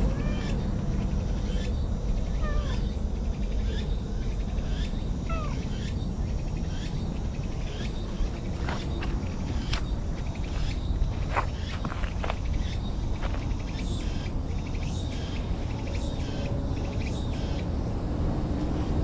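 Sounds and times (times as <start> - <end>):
steady low rumble: 0.0 - 19.0
cat meowing: 0.1 - 0.6, 2.3 - 3.0, 5.2 - 5.8.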